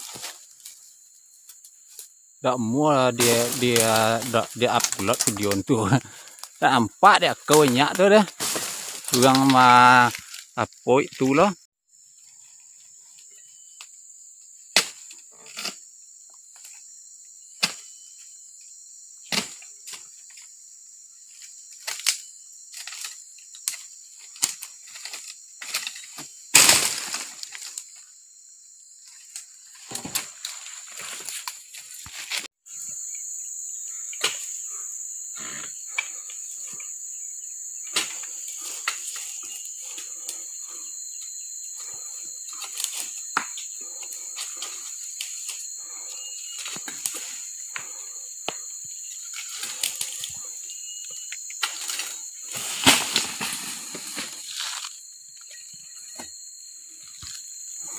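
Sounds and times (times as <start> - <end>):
insects buzzing: 0.0 - 57.9
crash and rustle of fronds: 3.2 - 5.4, 7.5 - 9.4, 24.4 - 27.8, 29.2 - 32.5, 51.6 - 55.0.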